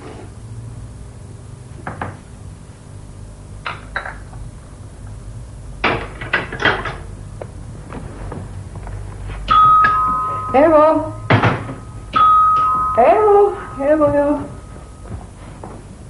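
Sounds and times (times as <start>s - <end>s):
steady ringing tone: 9.4s - 15.8s.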